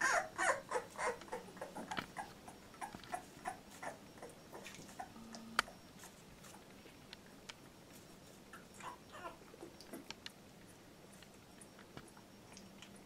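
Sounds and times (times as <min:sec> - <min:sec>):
puppy whimpering: 0:00.0 - 0:06.6, 0:08.6 - 0:10.1
clicks: 0:04.7 - 0:05.8.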